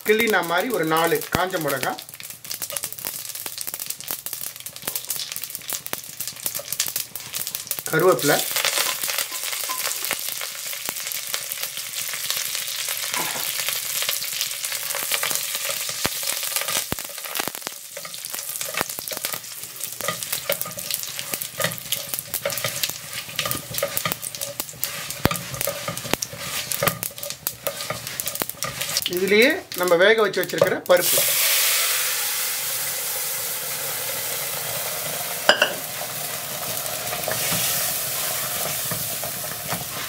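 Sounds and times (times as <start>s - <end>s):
spices sizzling and crackling in oil: 0.0s - 40.0s
spatula stirring: 14.0s - 31.4s, 36.8s - 40.0s.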